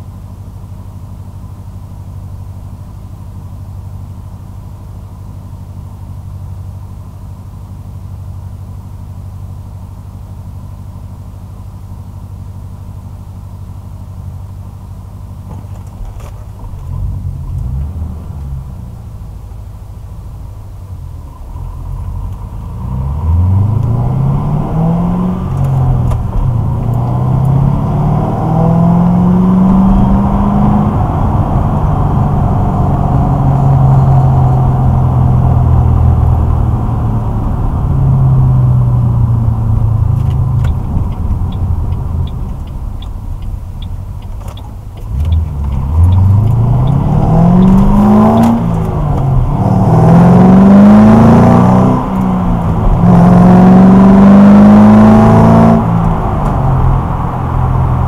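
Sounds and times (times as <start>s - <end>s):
car exhaust revving: 16.0s - 58.0s.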